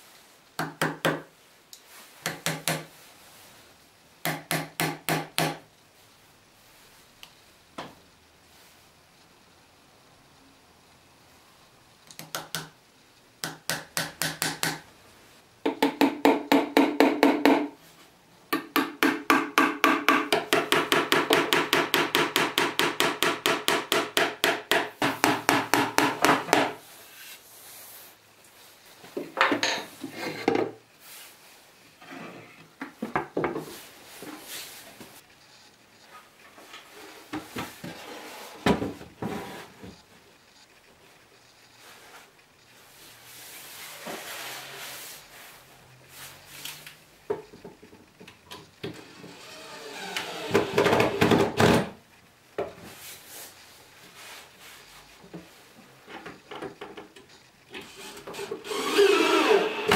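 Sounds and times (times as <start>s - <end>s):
hammer tapping on workpiece: 2.2s - 2.9s, 4.2s - 5.6s, 13.4s - 14.8s, 15.6s - 17.7s, 18.5s - 26.8s.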